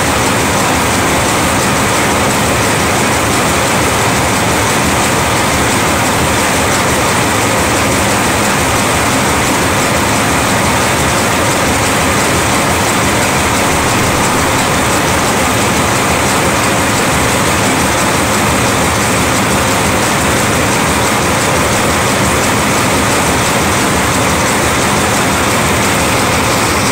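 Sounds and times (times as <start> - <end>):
wire forming machine clattering: 0.0 - 26.9.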